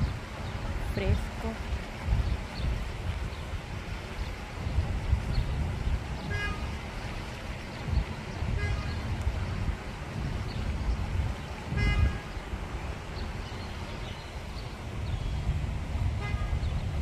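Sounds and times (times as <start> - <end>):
wind buffeting microphone: 0.0 - 17.0
short honks: 6.3 - 6.7, 8.6 - 9.0, 11.7 - 12.3, 16.2 - 16.6.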